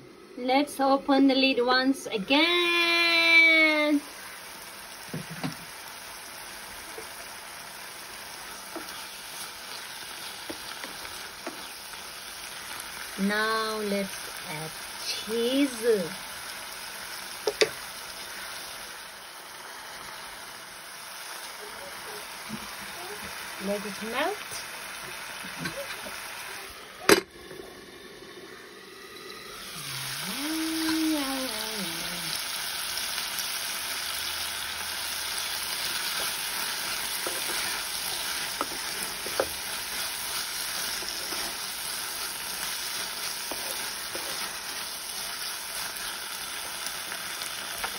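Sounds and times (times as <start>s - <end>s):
sauce simmering and bubbling: 4.0s - 13.2s, 24.2s - 47.9s
metal lid clanking on pan: 27.1s - 27.3s.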